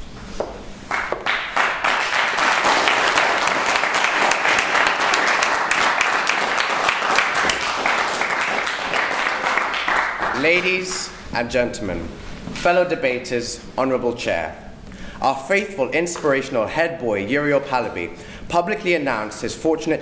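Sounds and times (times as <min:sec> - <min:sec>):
audience clapping: 0:00.9 - 0:11.2.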